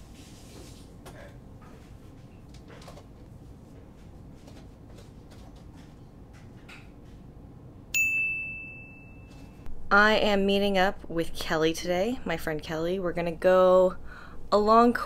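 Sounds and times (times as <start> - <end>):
bright bell ding: 8.0 - 9.6.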